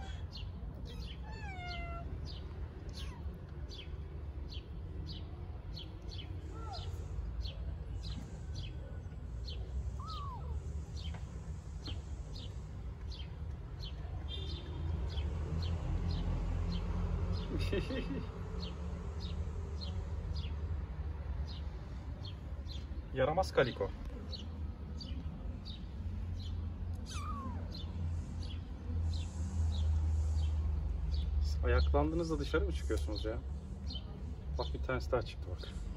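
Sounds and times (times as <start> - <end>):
bird chirping: 0.0 - 16.8.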